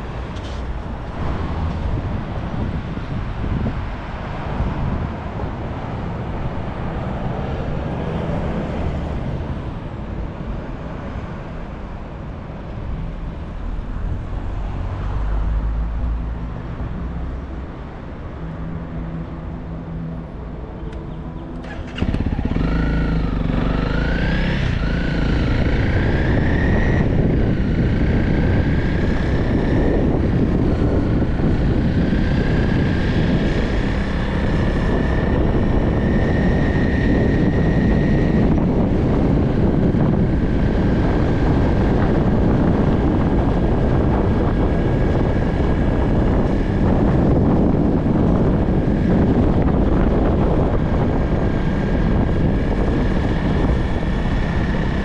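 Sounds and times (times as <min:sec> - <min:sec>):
motorcycle engine revving: 0:21.5 - 0:55.0.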